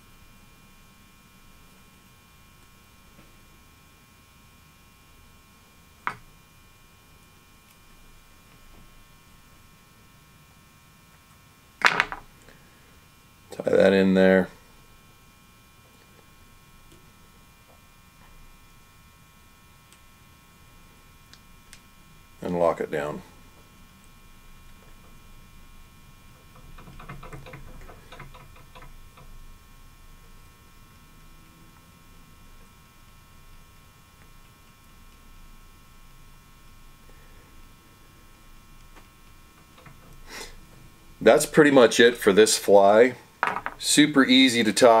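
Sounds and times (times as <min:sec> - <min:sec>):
faint electrical hum: 0:00.0 - 0:45.0
low hiss: 0:00.0 - 0:45.0
soft ticks of hands and tools: 0:26.5 - 0:29.3.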